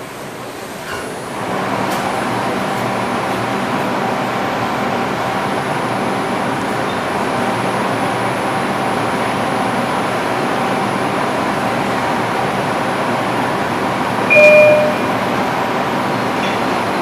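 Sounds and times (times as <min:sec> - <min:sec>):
subway platform rumbling din: 0:00.0 - 0:17.0
two-note chime: 0:14.3 - 0:15.2.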